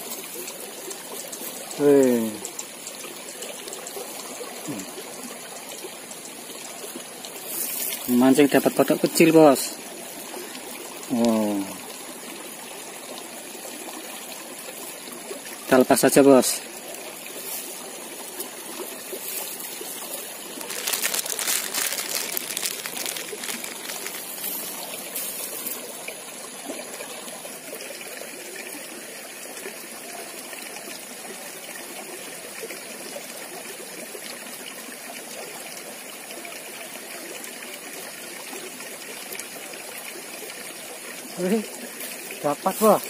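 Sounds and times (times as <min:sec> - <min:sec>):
stream trickling over stones: 0:00.0 - 0:43.0
rustling and clicks: 0:19.2 - 0:25.8.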